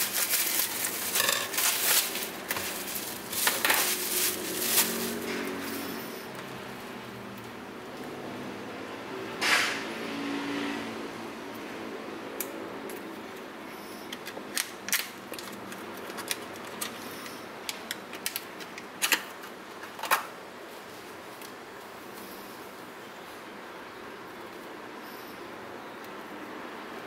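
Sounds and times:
cellophane crinkling and tearing: 0.0 - 5.9.

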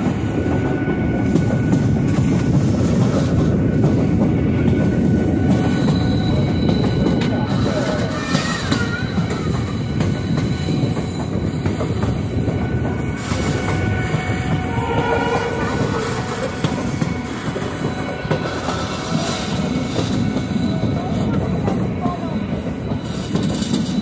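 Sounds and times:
train wheels clattering on rails: 0.0 - 24.0.

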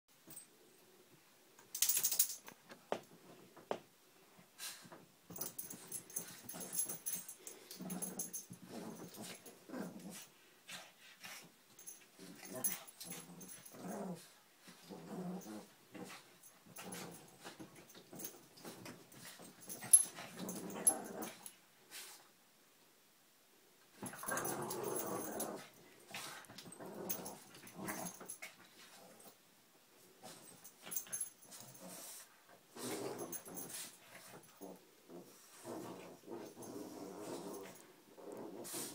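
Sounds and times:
dogs growling and grunting: 5.5 - 10.3, 12.2 - 17.4, 19.6 - 21.5, 24.0 - 25.8, 26.6 - 28.4, 32.8 - 38.9.

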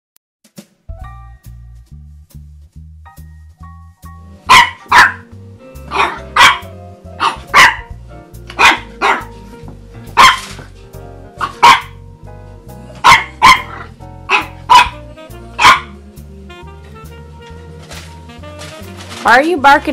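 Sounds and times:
background music: 0.5 - 19.9
puppy barking: 4.4 - 5.3, 5.9 - 7.9, 8.5 - 9.4, 10.2 - 10.7, 11.4 - 12.0, 13.0 - 16.0.

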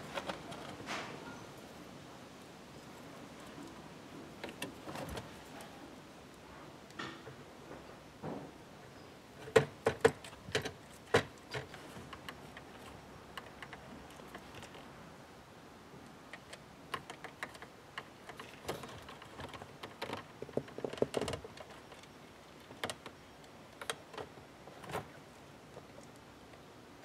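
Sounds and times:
small clicks and plastic rattles: 9.4 - 14.9, 16.3 - 26.6.

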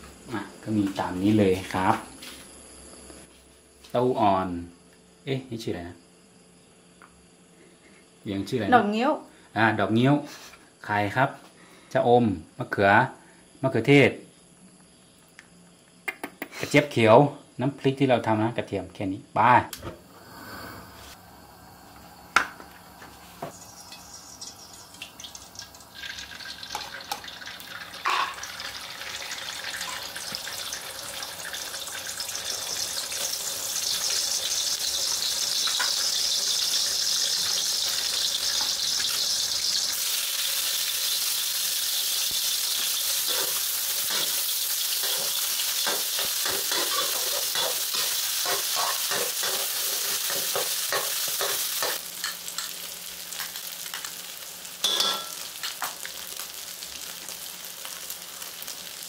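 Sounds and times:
food frying in oil in a wok: 22.7 - 59.0
metal spatula scraping wok: 43.0 - 52.4.

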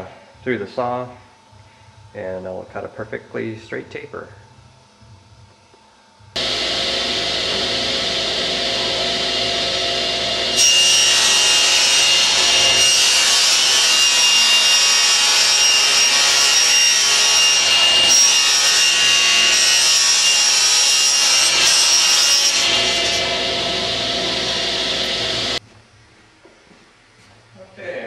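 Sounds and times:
table saw cutting plywood: 6.4 - 25.6.

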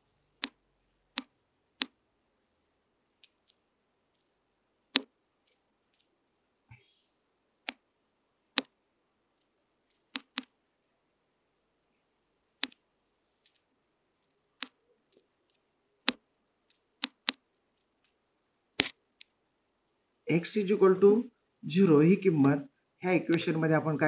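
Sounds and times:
sharp clicks: 10.0 - 10.6, 15.5 - 18.2.

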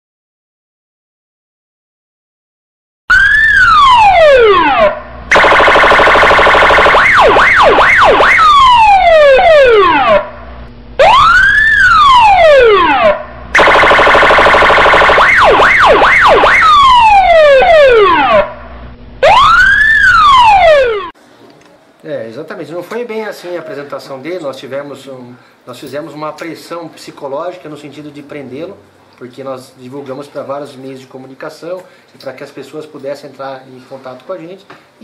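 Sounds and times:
electronic police siren: 3.1 - 21.2.

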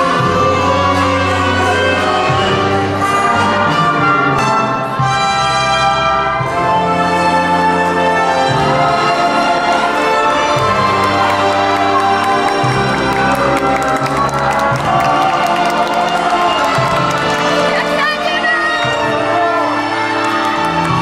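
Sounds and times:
dance orchestra playing a waltz: 0.0 - 21.0.

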